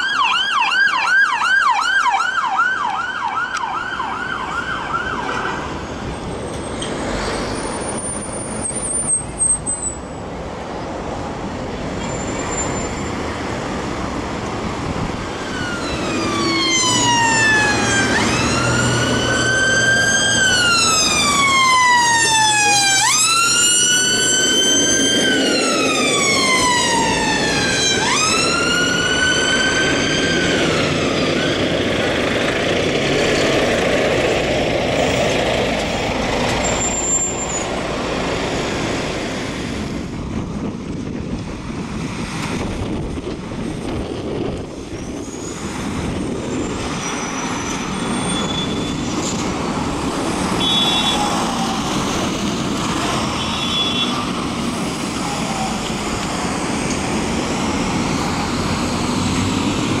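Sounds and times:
ambulance siren wailing: 0.0 - 6.1, 15.0 - 33.3, 49.8 - 60.0
town traffic noise: 0.0 - 60.0.

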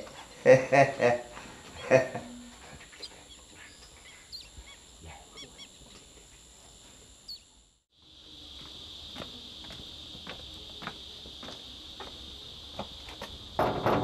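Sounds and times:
insects chirring: 0.0 - 14.0
faint bird chirps: 2.8 - 5.9, 7.2 - 7.6.

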